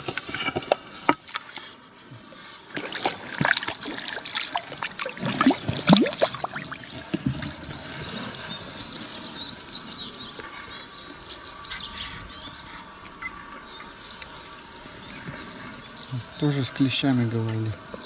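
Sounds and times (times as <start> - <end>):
small birds chirping: 0.0 - 18.0
water splashing and gurgling: 2.6 - 7.8.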